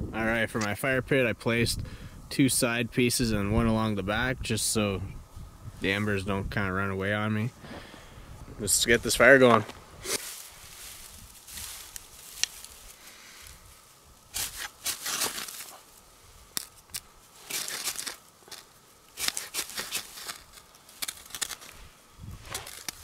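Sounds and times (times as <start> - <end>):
ferro rod scraping: 16.6 - 23.0.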